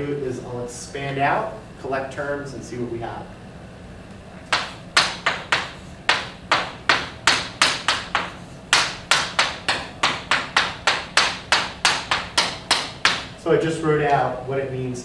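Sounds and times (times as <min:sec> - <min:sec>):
chalk tapping on blackboard: 0:04.5 - 0:13.3.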